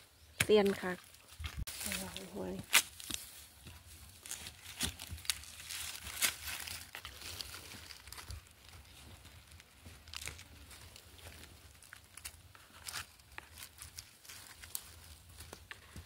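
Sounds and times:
rustling of dry leaves and soil: 0:00.0 - 0:16.0
small crackles: 0:04.1 - 0:16.0.

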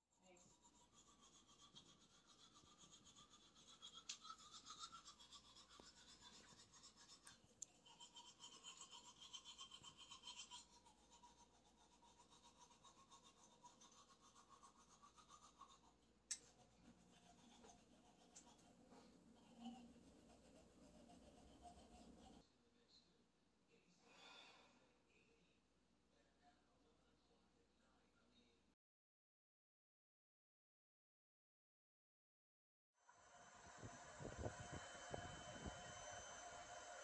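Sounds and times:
toothbrush scrubbing teeth: 0:00.2 - 0:22.4, 0:33.6 - 0:37.0.

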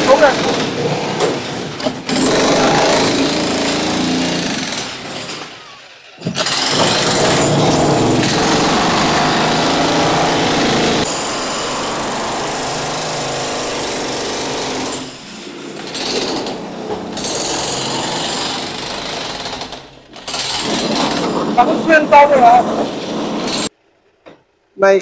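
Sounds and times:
loud machinery running: 0:02.1 - 0:04.5, 0:06.4 - 0:14.8.

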